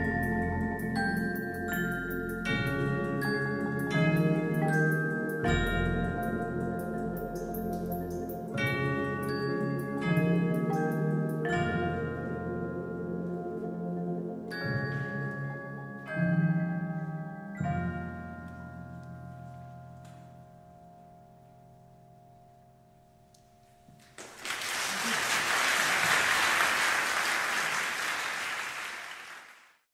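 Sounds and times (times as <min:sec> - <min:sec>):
mallet percussion chords ringing: 0:00.0 - 0:12.6
audience applause: 0:24.1 - 0:29.8.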